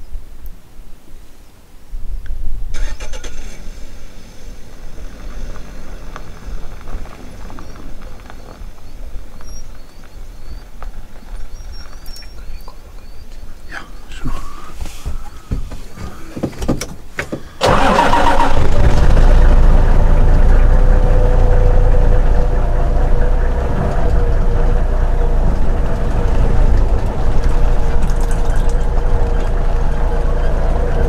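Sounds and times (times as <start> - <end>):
vehicle engine starting and idling: 2.7 - 8.6, 17.2 - 31.0.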